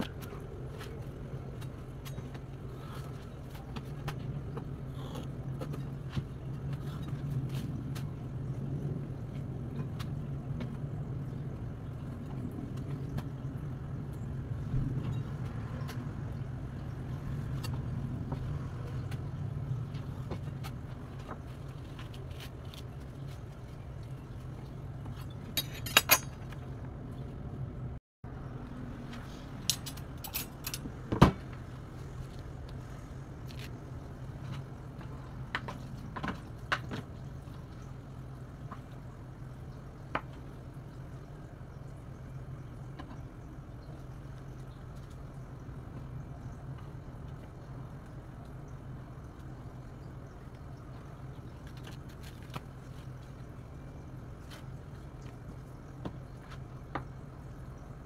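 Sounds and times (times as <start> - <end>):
sharp clicks and clinks: 25.2 - 26.6.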